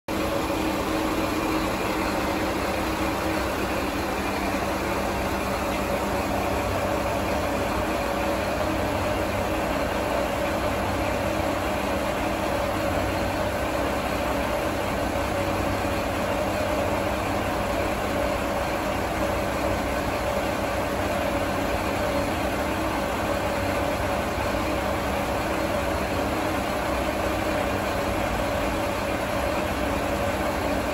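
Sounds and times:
diesel railcar engine idling: 0:00.1 - 0:30.9.

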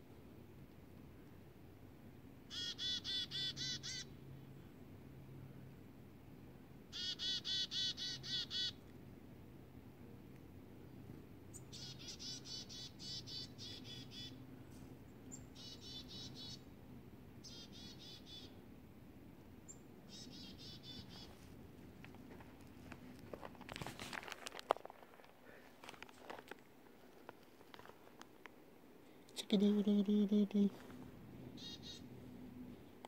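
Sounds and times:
chickadee calling: 0:02.5 - 0:04.2, 0:06.9 - 0:08.8, 0:11.5 - 0:14.4, 0:15.3 - 0:16.7, 0:17.4 - 0:18.6, 0:19.7 - 0:21.4, 0:31.6 - 0:32.1.

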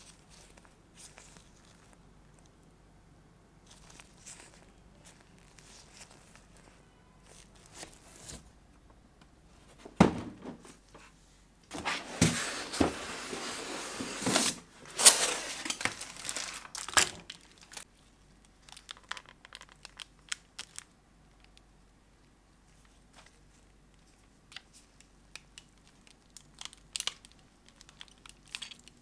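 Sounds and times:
plastic wrapping crinkling: 0:00.0 - 0:02.6, 0:03.6 - 0:08.4, 0:14.2 - 0:21.7, 0:22.7 - 0:29.0.

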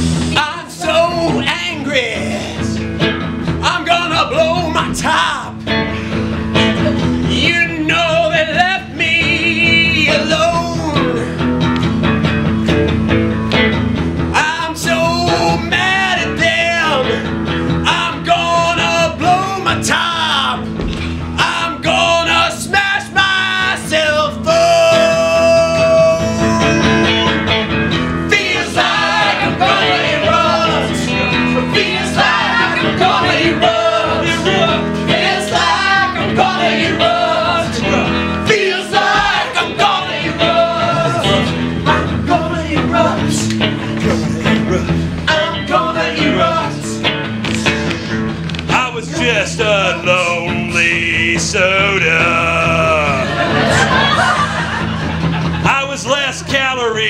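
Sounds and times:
live musical accompaniment: 0:00.0 - 0:57.0
voices singing: 0:00.1 - 0:02.9, 0:06.6 - 0:11.3, 0:14.4 - 0:20.6, 0:21.4 - 0:57.0.

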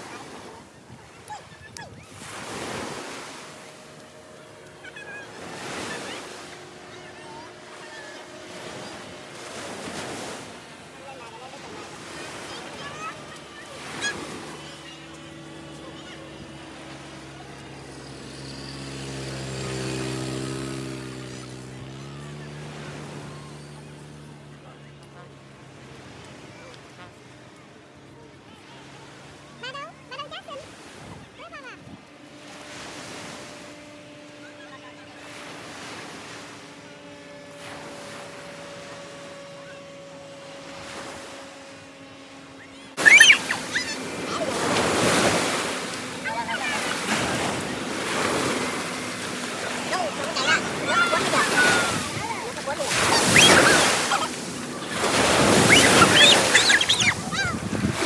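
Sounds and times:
surf and wind: 0:00.0 - 0:58.0
vehicle engine passing: 0:02.2 - 0:58.0
high-pitched cries: 0:43.0 - 0:44.6, 0:52.9 - 0:54.4, 0:55.5 - 0:57.6.

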